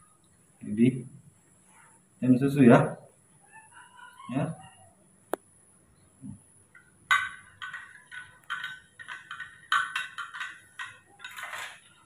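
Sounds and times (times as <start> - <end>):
spoon clinking against container: 6.8 - 12.0.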